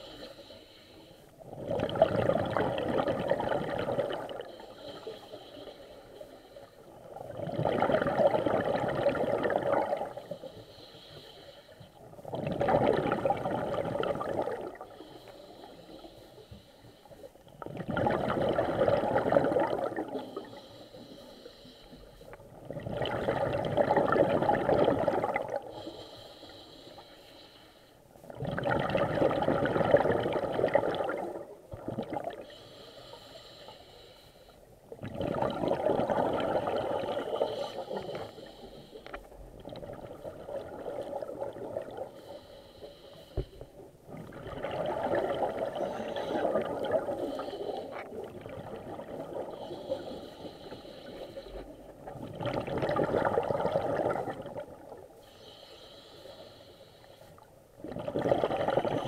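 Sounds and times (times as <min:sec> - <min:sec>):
underwater bubbles gurgling: 0:01.4 - 0:21.6, 0:22.2 - 0:27.1, 0:28.2 - 0:33.6, 0:34.8 - 0:59.0
diver inhaling: 0:20.2 - 0:22.4, 0:25.7 - 0:28.0, 0:32.4 - 0:34.6, 0:37.2 - 0:39.4, 0:42.0 - 0:43.8, 0:49.4 - 0:51.9, 0:55.2 - 0:57.4.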